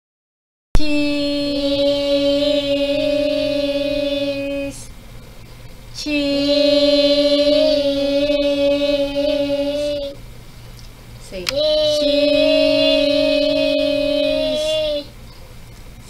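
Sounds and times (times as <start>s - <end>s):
child singing held notes: 0.8s - 4.9s, 6.0s - 10.2s, 11.3s - 15.2s
woman singing held notes: 0.8s - 4.9s.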